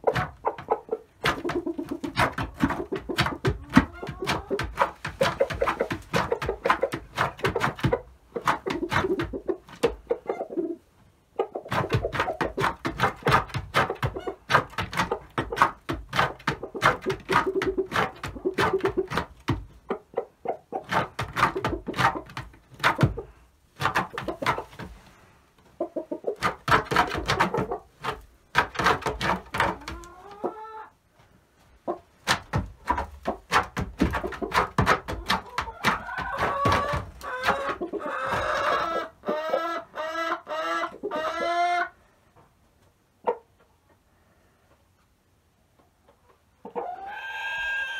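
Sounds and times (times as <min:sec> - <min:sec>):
hens clucking: 0:00.0 - 0:31.0, 0:31.8 - 0:42.5, 0:43.2 - 0:44.0, 0:45.8 - 0:47.9.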